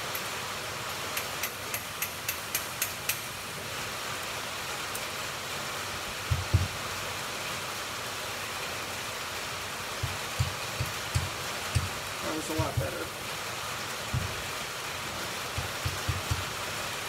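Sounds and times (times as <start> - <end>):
rain on metal building: 0.0 - 17.0
hammer tapping metal: 1.2 - 3.2, 6.3 - 6.8, 10.0 - 13.0, 14.1 - 14.5, 15.2 - 16.6
dull knocks: 6.3 - 6.8, 10.0 - 12.0, 14.1 - 14.5, 15.5 - 16.6.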